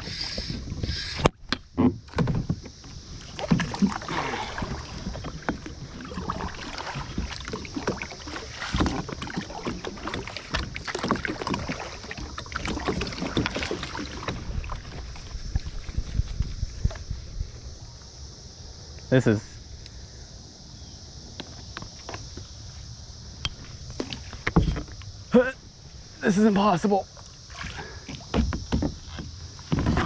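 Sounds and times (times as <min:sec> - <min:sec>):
water splashing around kayak: 0:00.0 - 0:17.1, 0:26.0 - 0:30.0
paddle knocking plastic hull: 0:01.2 - 0:16.0, 0:27.6 - 0:30.0.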